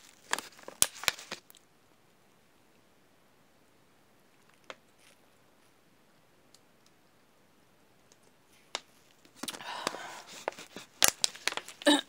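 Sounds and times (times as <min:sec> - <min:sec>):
plastic bottle clicking and crackling: 0:00.1 - 0:01.6, 0:08.7 - 0:12.0.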